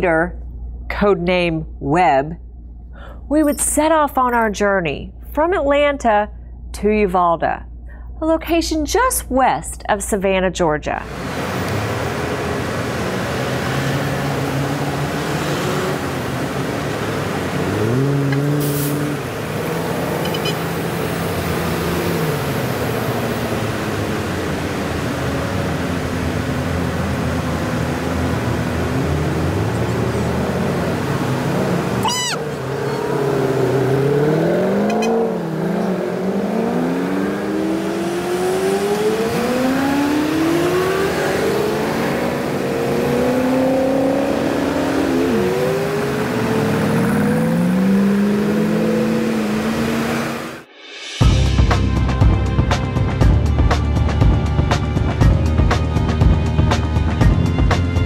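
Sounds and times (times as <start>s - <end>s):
car engine revving: 11.0s - 50.9s.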